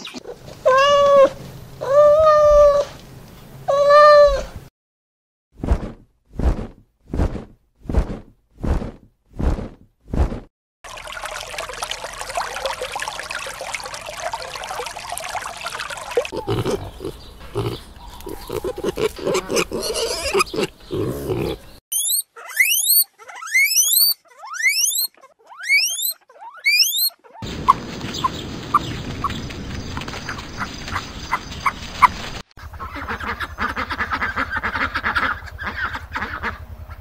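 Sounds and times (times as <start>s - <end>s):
pigs grunting: 16.2s - 21.8s.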